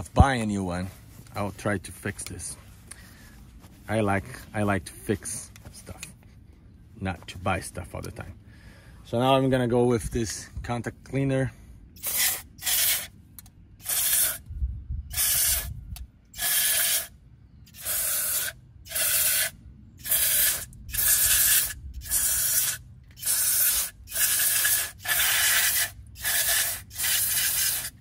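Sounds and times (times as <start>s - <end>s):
aerosol spray hissing bursts: 12.0s - 13.1s, 13.8s - 14.4s, 15.1s - 15.7s, 16.4s - 17.1s, 17.7s - 28.0s.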